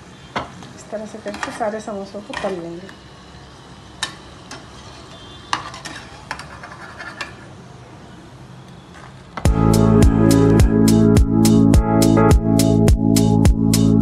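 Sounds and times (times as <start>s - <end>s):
oil sizzling: 1.0s - 6.8s
metal spatula clinking on pan: 4.0s - 7.4s
electronic music with beat: 9.5s - 14.0s.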